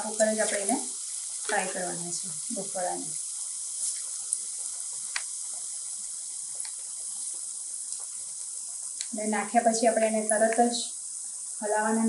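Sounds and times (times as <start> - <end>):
hot oil sizzling and bubbling: 0.0 - 12.0
faint pops: 3.9 - 9.2.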